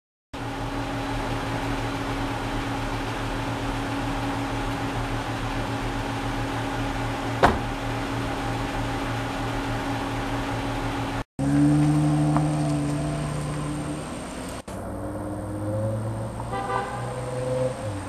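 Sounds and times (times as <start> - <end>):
car engine idling: 0.4 - 14.9
car door shutting: 7.3 - 7.8.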